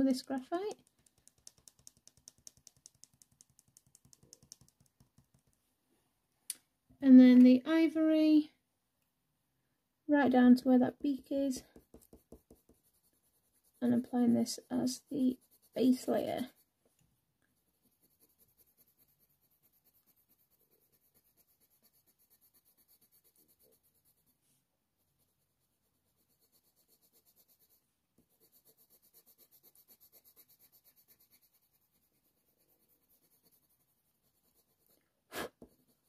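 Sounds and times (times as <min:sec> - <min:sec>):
pencil scratching on paper: 0:00.0 - 0:05.6, 0:11.0 - 0:16.7, 0:17.7 - 0:24.4, 0:25.0 - 0:36.0.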